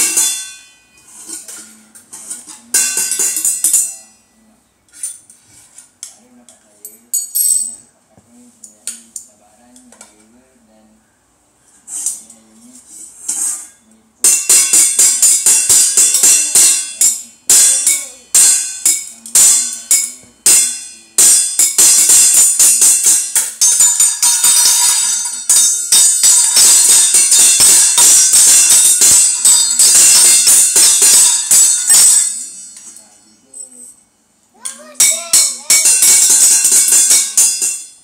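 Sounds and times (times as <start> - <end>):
sticks drumming on metal pots: 2.3 - 3.9, 14.2 - 32.8, 34.7 - 38.0.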